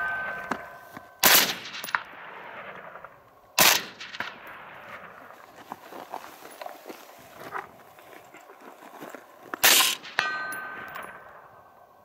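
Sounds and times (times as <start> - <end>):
steel target ringing: 0.0 - 2.2, 9.7 - 11.8
rifle shots with echo: 0.0 - 5.4, 9.6 - 11.5.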